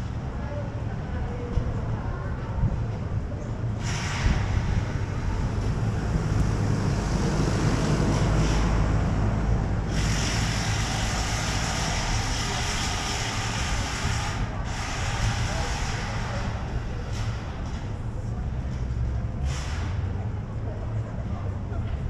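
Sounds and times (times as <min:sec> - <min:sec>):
traffic rumble: 0:00.0 - 0:22.0
wind buffeting microphone: 0:00.2 - 0:11.0.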